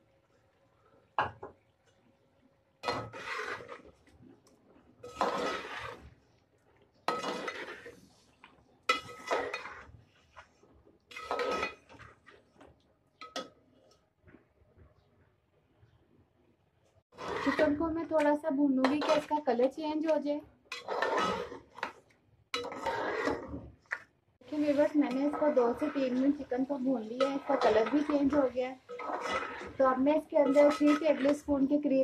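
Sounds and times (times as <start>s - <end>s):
metal spoon scraping a pot: 2.8s - 4.0s, 5.0s - 6.2s, 7.1s - 8.3s, 8.9s - 12.6s, 17.1s - 32.0s.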